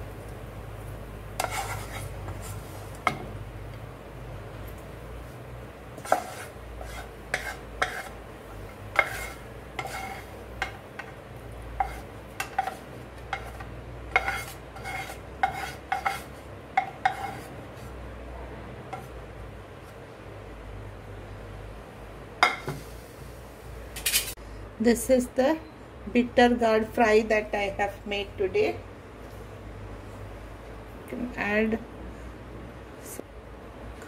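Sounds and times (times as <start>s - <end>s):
spatula scraping a pan: 1.4s - 3.2s, 6.0s - 11.2s, 11.8s - 18.0s, 18.9s - 19.2s.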